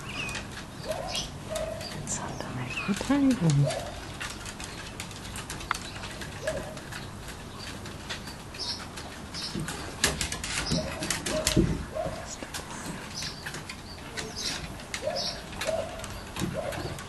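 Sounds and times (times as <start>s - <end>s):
dog whining: 14.1s - 17.0s.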